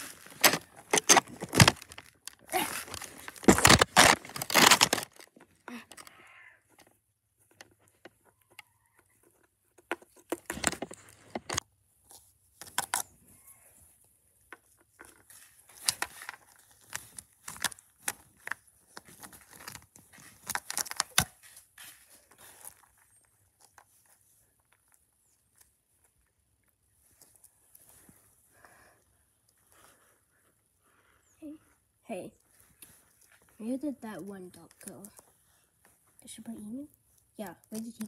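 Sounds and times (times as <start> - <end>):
plastic figurines tapped and scraped: 0.2 - 6.0, 9.0 - 11.6.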